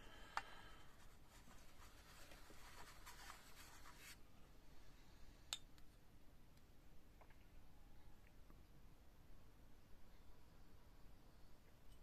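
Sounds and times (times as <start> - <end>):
soft scratchy rubbing: 0.9 - 4.2.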